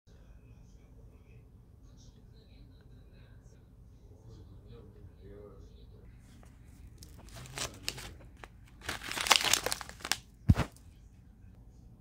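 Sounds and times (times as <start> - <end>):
plastic packet crinkling: 7.0 - 10.8.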